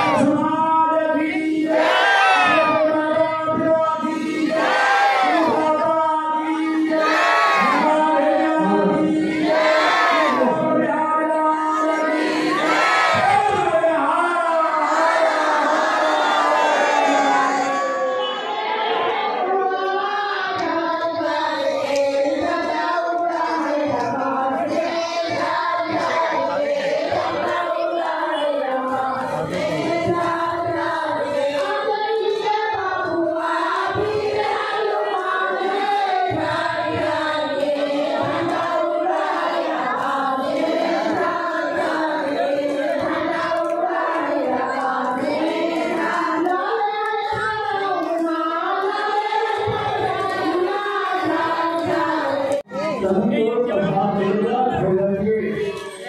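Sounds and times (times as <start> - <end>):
women singing in unison: 0.0 - 52.7
hand-clapping: 42.2 - 50.6.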